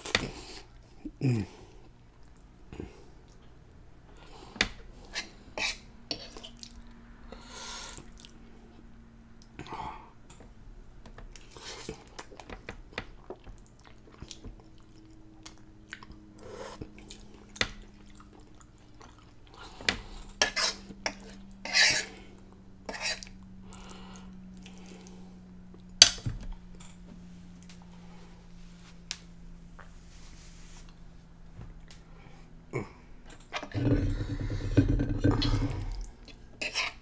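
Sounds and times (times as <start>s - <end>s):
chewing: 5.1s - 6.9s, 8.0s - 8.4s, 11.4s - 25.8s
fork scraping on metal griddle: 20.4s - 20.8s, 21.6s - 22.2s, 22.9s - 23.2s.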